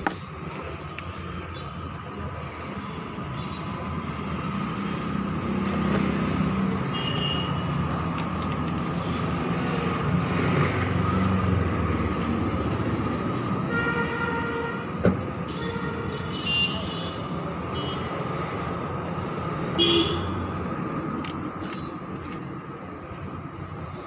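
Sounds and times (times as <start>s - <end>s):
street traffic rumble: 0.0s - 24.0s
vehicle horn: 13.7s - 14.9s, 19.8s - 20.4s.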